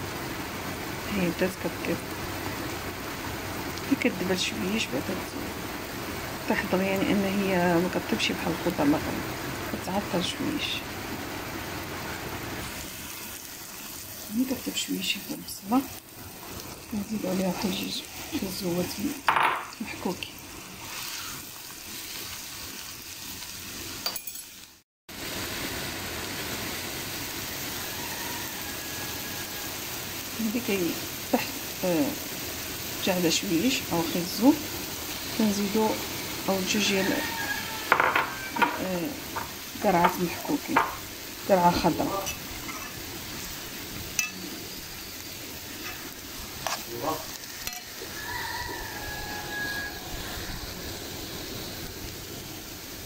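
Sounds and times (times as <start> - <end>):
vegetables sizzling in oil: 0.0 - 53.0
spatula stirring in pan: 12.6 - 19.1, 20.4 - 23.4, 42.2 - 44.6, 45.6 - 50.5
metal spoon clinking on pan: 24.0 - 24.7, 44.2 - 44.5, 47.6 - 48.0.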